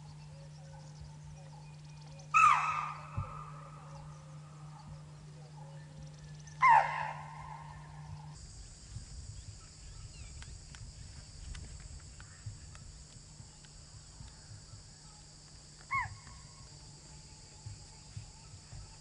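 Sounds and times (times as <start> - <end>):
high insect drone: 0.0 - 19.0
animal call falling in pitch: 2.3 - 3.8, 6.6 - 8.0.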